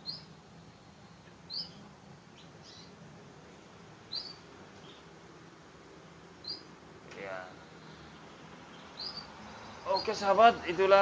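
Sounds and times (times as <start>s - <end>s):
canaries chirping: 0.0s - 0.4s, 1.1s - 3.0s, 4.0s - 5.1s, 6.4s - 11.0s.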